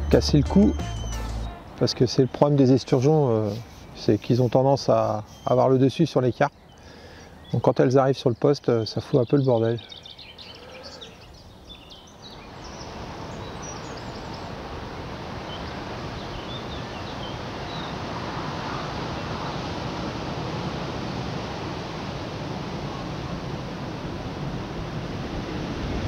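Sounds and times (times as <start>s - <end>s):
wind rushing over microphone: 12.4s - 26.0s.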